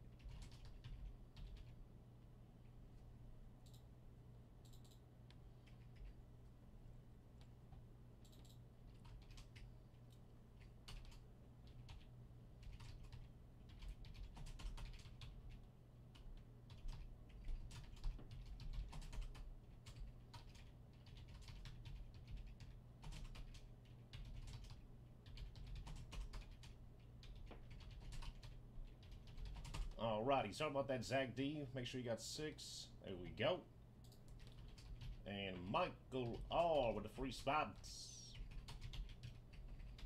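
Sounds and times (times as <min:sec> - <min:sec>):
steady low hum: 0:00.0 - 0:40.0
typing on computer keyboard: 0:00.1 - 0:01.7, 0:08.2 - 0:30.0, 0:34.0 - 0:35.2, 0:38.4 - 0:40.0.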